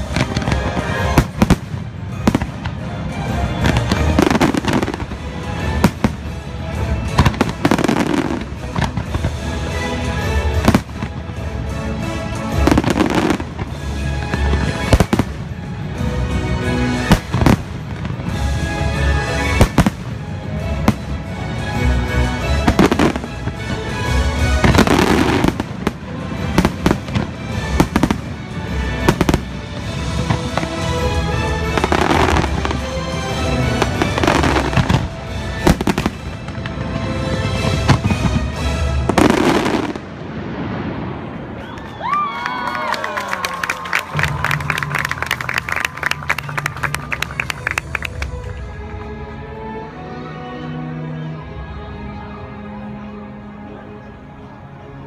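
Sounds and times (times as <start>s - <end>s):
loud show music: 0.0s - 40.1s
fireworks launching and bursting: 0.0s - 42.2s.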